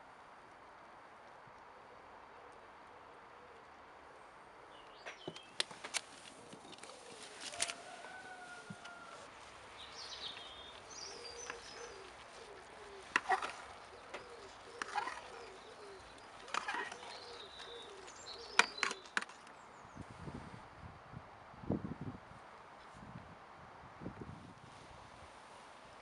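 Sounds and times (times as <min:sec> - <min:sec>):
birds chirping: 0:04.6 - 0:20.1.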